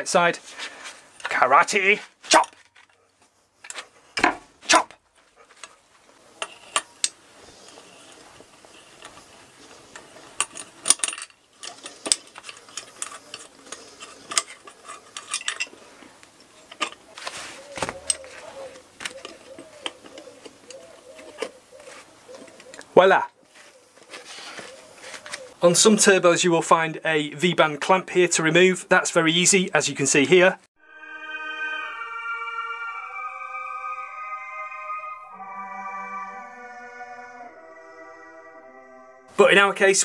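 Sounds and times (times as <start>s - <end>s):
spanner and bolts clinking: 9.9s - 15.8s.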